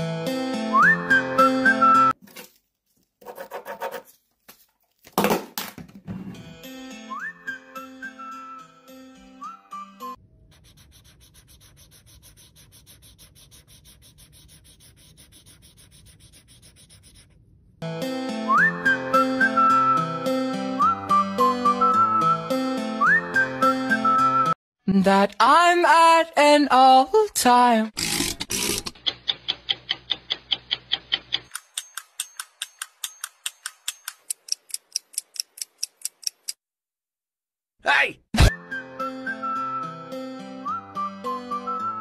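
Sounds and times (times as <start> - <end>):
loud music with whistled tune: 0.5 - 2.2, 6.8 - 10.2, 18.3 - 24.6, 38.5 - 42.0
marker scribbling on paper: 3.2 - 4.1, 10.5 - 17.4.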